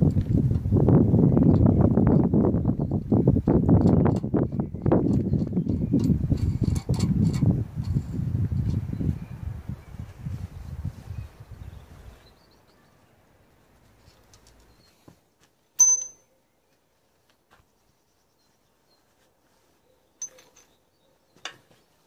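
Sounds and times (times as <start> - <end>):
metallic clinks: 15.8 - 16.4, 20.2 - 20.8
metal tools shuffling and rustling: 20.2 - 20.8.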